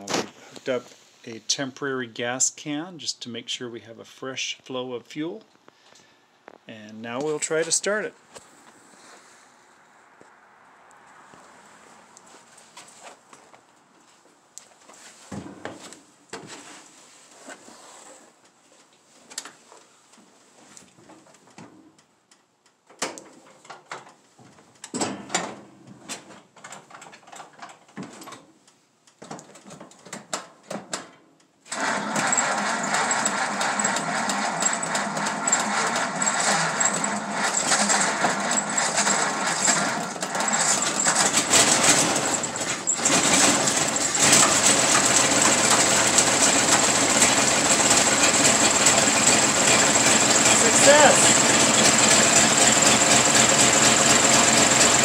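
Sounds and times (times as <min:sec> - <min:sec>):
car engine starting and running: 0:31.8 - 0:55.0
clicks and rattling bursts: 0:31.8 - 0:55.0.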